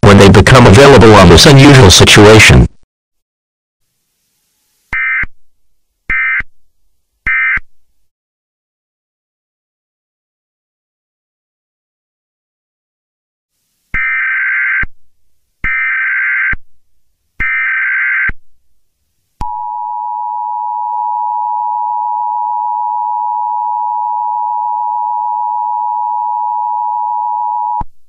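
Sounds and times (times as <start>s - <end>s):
short data bursts: 4.9s - 5.3s.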